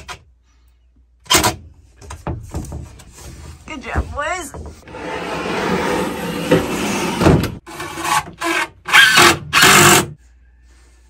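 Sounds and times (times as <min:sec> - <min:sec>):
power drill driving screws: 0:08.4 - 0:10.1.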